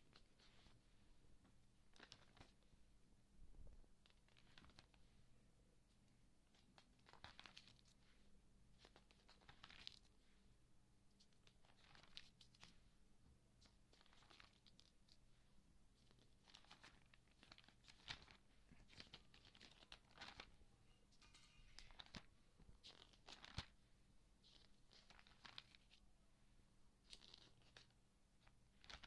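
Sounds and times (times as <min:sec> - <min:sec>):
magazine pages rustling: 0:01.9 - 0:02.6, 0:04.0 - 0:05.0, 0:06.5 - 0:08.1, 0:08.8 - 0:10.2, 0:11.2 - 0:12.8, 0:13.6 - 0:15.2, 0:16.0 - 0:20.6, 0:21.2 - 0:23.8, 0:24.4 - 0:26.0, 0:27.0 - 0:29.0.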